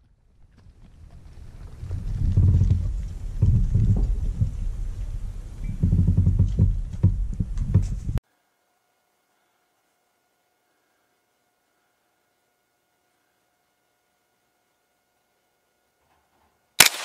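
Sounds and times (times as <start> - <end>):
low rumbling on microphone: 0.0 - 8.2
faint hum: 0.0 - 16.8
knocks: 5.7 - 8.2.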